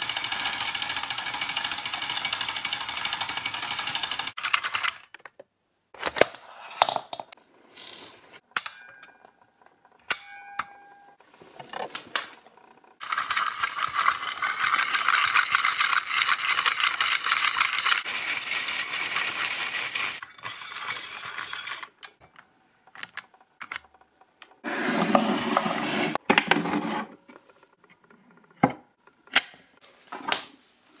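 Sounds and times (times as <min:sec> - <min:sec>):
film projector rattling: 0:00.0 - 0:05.0, 0:13.0 - 0:22.0
scattered clicks and clacks: 0:13.0 - 0:18.1.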